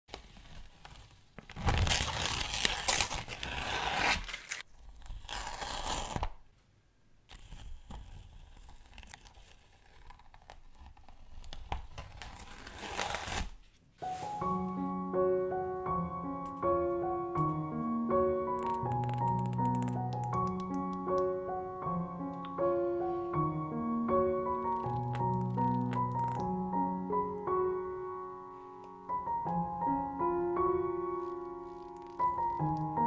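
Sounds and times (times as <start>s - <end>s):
paper rustling: 0.1s - 6.3s, 7.3s - 14.8s
paper ripping off sheet: 0.2s - 6.4s, 7.3s - 14.4s
gentle piano music: 14.0s - 33.0s.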